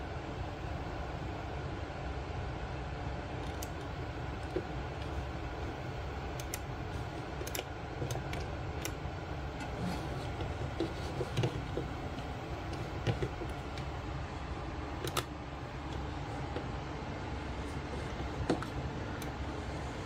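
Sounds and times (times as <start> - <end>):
steady low hum: 0.0 - 20.0
computer mouse clicks: 3.4 - 14.0, 15.0 - 16.7, 17.6 - 19.5.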